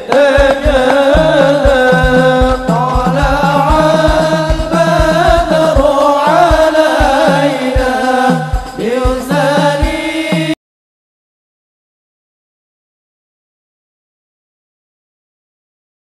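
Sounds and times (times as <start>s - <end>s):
low drum beat: 0.0s - 10.6s
men singing devotional song: 0.0s - 10.6s.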